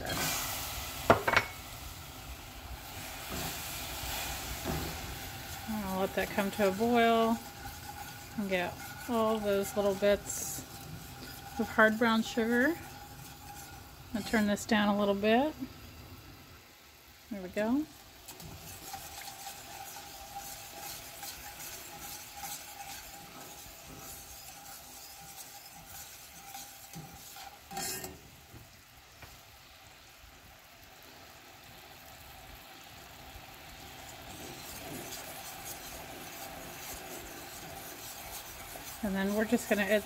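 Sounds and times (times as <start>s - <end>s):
syrup sizzling and bubbling: 0.0s - 40.0s
whisk clanking against pan: 1.1s - 1.6s, 4.5s - 15.2s, 18.3s - 28.2s, 34.3s - 40.0s
whisk stirring syrup: 4.0s - 15.3s, 18.3s - 28.0s, 34.1s - 40.0s.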